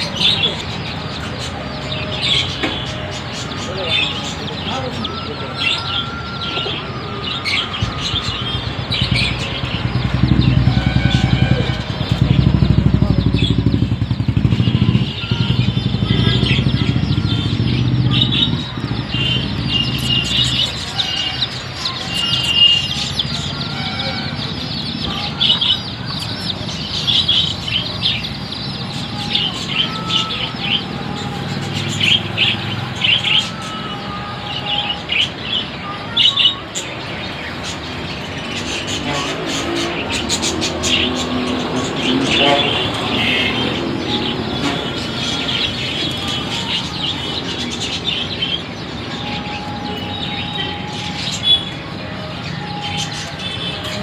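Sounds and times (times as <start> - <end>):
small birds chirping: 0.0 - 54.0
low engine rumble: 7.8 - 21.0.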